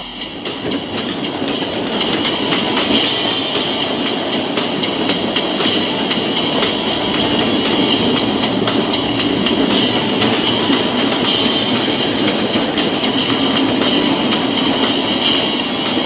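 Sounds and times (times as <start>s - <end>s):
high whine: 0.0s - 16.0s
sled rolling rumble and rattle: 0.0s - 16.0s
wheel clicks on track: 0.0s - 16.0s.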